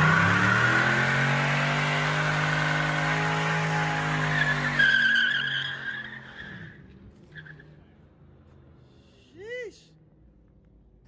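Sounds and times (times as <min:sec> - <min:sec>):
car engine revving high: 0:00.0 - 0:05.1
tyres spinning and squealing: 0:00.0 - 0:07.7.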